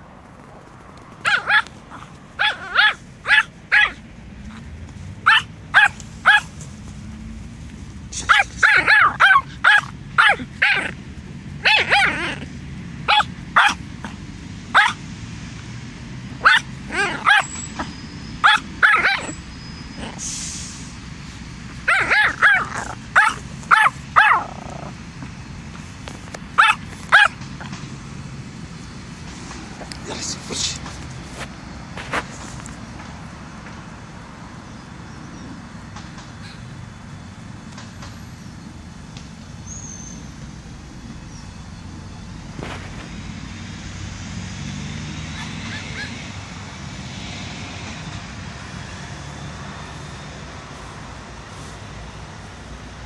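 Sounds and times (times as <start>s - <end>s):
small dog barking high-pitched: 1.2s - 4.0s, 5.2s - 6.6s, 8.2s - 11.0s, 11.6s - 13.9s, 14.7s - 15.0s, 16.4s - 19.4s, 21.8s - 24.6s, 26.6s - 27.4s, 45.3s - 46.2s.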